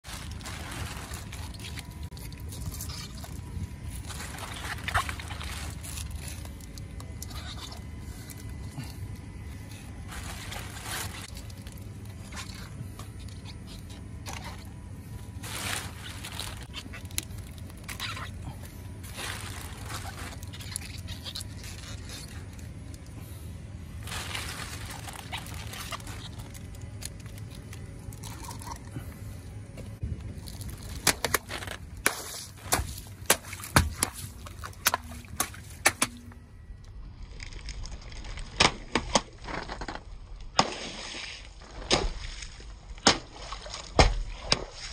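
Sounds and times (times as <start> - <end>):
rubber balloons scraping and rustling: 10.0 - 11.4, 19.0 - 22.7.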